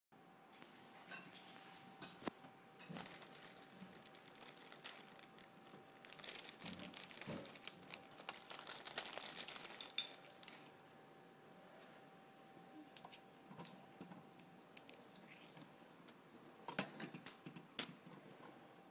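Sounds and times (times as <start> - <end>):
plastic bags crinkling: 2.8 - 10.8.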